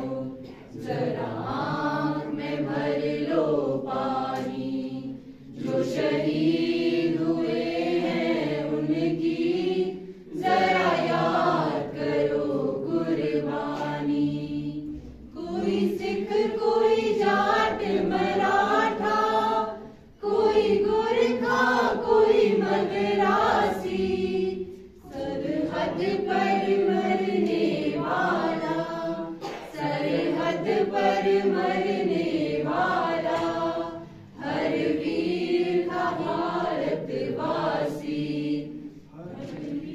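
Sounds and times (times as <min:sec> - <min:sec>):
group singing without instruments: 0:00.0 - 0:39.9.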